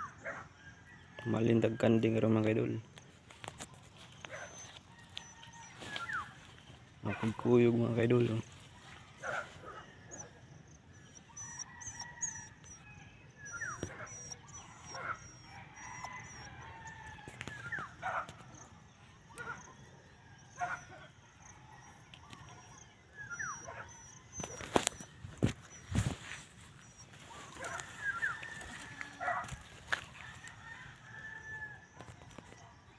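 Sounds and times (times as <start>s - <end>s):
puppy yelping and whimpering: 4.2s - 6.3s, 10.1s - 16.7s, 21.7s - 29.5s.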